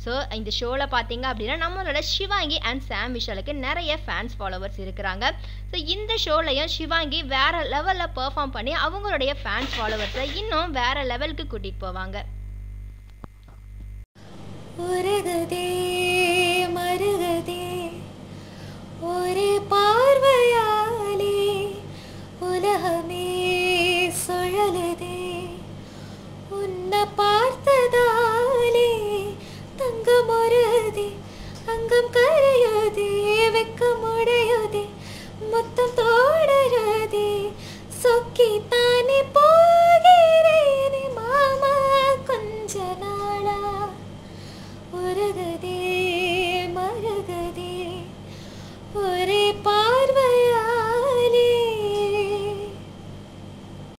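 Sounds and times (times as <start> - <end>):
woman singing unaccompanied: 14.7 - 18.1, 19.0 - 25.8, 26.5 - 44.1, 44.9 - 48.2, 48.9 - 52.9.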